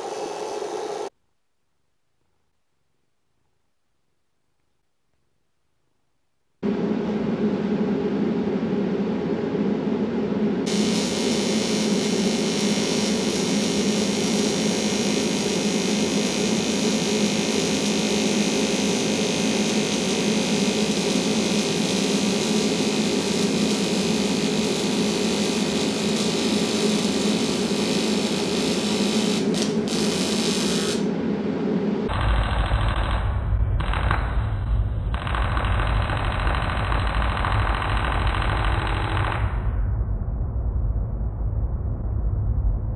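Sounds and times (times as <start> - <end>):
steady hum: 6.6 - 42.9
welding arc crackles: 10.7 - 31.0, 32.1 - 39.5
welding arc hiss: 10.7 - 31.1, 35.2 - 39.4.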